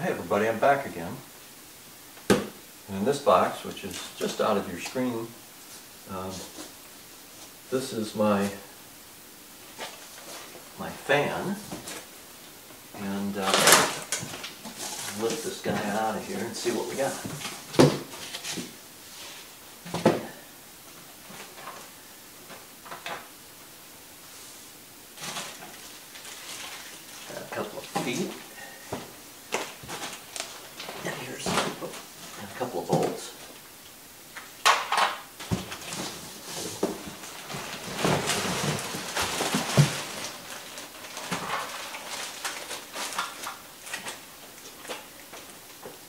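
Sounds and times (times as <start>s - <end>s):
plastic bag crinkling: 25.2s - 28.6s, 35.4s - 45.5s
cardboard scraping: 35.4s - 43.4s.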